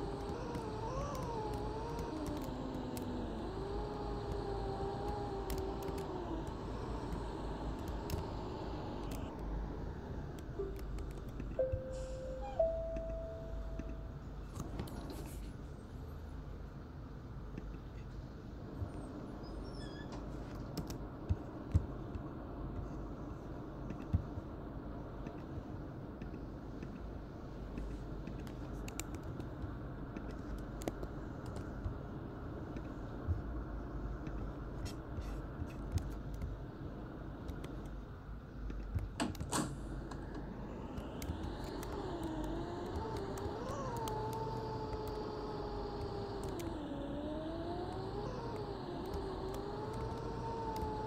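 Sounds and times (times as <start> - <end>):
sharp clicks: 0.0 - 9.5, 38.6 - 51.0
rising whine: 0.0 - 15.1, 39.8 - 51.0
bus engine rumble: 0.0 - 51.0.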